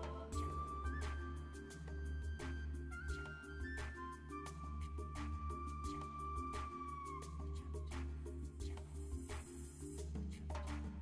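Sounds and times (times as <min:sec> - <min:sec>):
background music with bass: 0:00.0 - 0:11.0.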